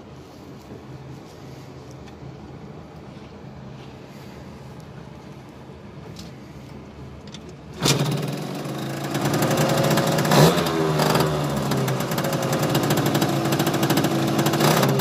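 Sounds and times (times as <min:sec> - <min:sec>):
faint steady hum: 0:00.0 - 0:07.8
scooter engine revving: 0:07.7 - 0:15.0.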